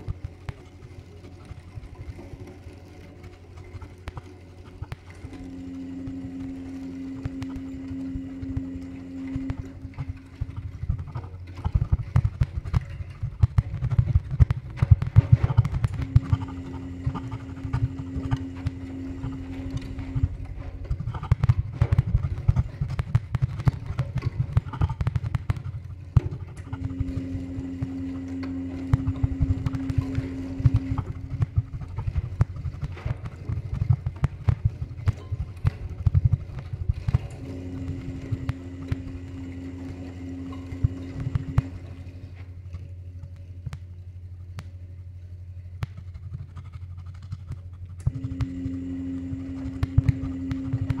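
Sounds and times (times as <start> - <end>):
low rumble: 5.2 - 42.6.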